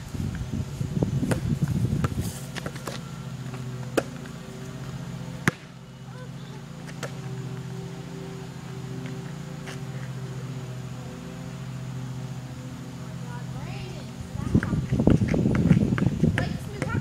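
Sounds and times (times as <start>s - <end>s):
low hum: 0.0s - 17.0s
basketball smacking hard surfaces: 5.4s - 5.7s.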